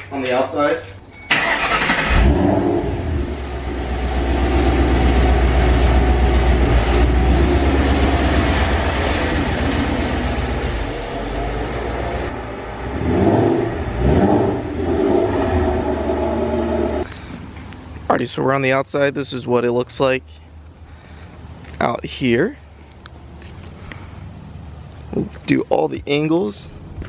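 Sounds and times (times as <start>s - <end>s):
car engine rumbling: 0.0s - 27.0s
engine revving: 1.3s - 17.1s.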